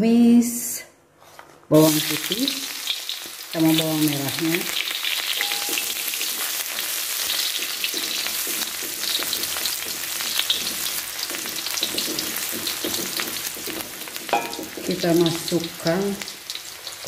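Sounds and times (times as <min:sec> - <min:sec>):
garlic sizzling in hot oil: 0:01.8 - 0:17.0
spatula scraping and tapping wok: 0:05.1 - 0:15.6.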